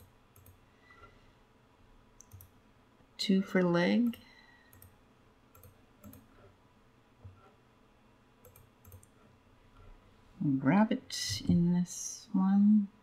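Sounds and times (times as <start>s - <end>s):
computer mouse clicks: 0.0s - 1.1s, 2.2s - 2.6s, 4.0s - 6.6s, 8.4s - 9.3s.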